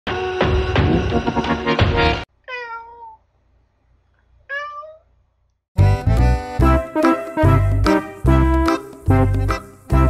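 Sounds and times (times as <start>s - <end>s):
loud keyboard music: 0.1s - 2.2s, 5.8s - 10.0s
cat meowing: 2.4s - 3.2s, 4.5s - 5.1s.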